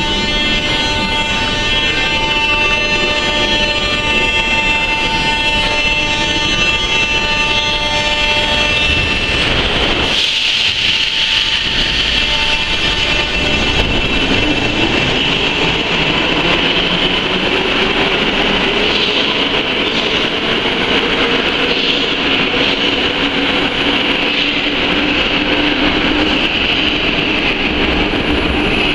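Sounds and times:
rising train whine: 0:00.0 - 0:28.9
train wheels rumbling on rail: 0:00.0 - 0:28.9.

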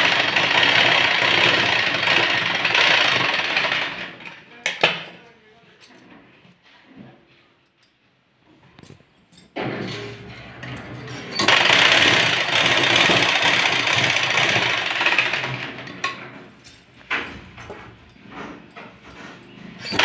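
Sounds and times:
sewing machine whirring: 0:00.0 - 0:04.4, 0:10.4 - 0:16.3, 0:17.6 - 0:20.0.

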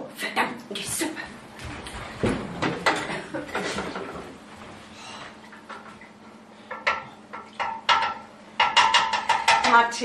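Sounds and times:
metal clanking on cooking pot: 0:06.7 - 0:10.0.

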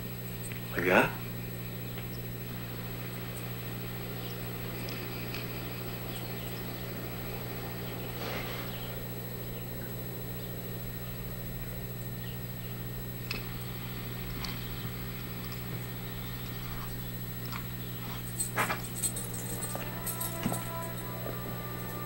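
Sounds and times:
faint outdoor sounds: 0:00.0 - 0:22.0
steady low hum: 0:00.0 - 0:22.0
western film soundtrack: 0:19.1 - 0:22.0.

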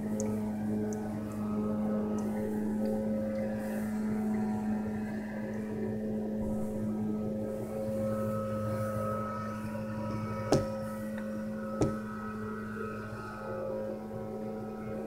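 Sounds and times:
sharp knocks: 0:10.5 - 0:10.8, 0:11.8 - 0:12.1.

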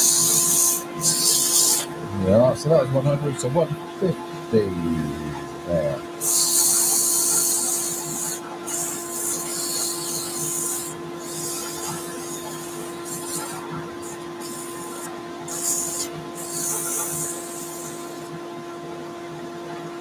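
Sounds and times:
sandpaper rasping on spinning wood: 0:00.0 - 0:01.9, 0:06.2 - 0:18.3
lathe motor humming: 0:00.0 - 0:18.3.

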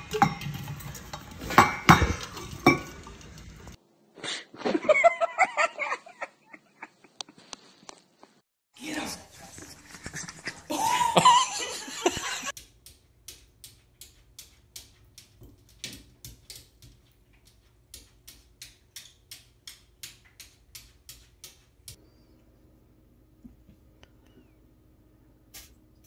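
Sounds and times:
person laughing loudly: 0:04.6 - 0:07.4, 0:09.8 - 0:12.5
faint steady hum: 0:21.9 - 0:26.0.

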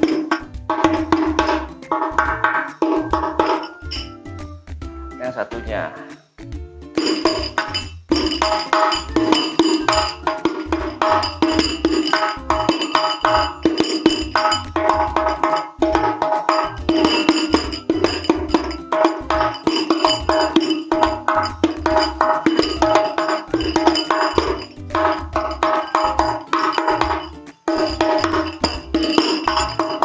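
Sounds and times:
frame drum with jingles: 0:00.0 - 0:04.3, 0:06.8 - 0:30.0.

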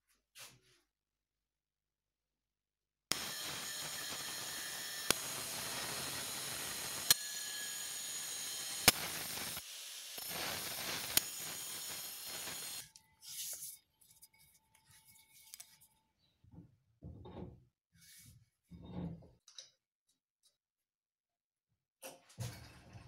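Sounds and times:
angle grinder grinding: 0:03.1 - 0:12.9
faint handling sounds: 0:12.9 - 0:16.3.

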